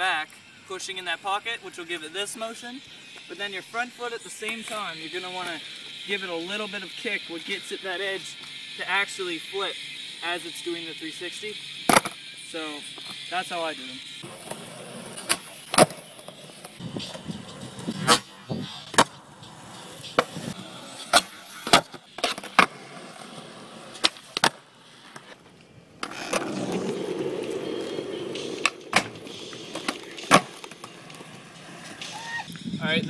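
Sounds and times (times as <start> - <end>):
skateboard clacking on asphalt: 14.2 - 32.4.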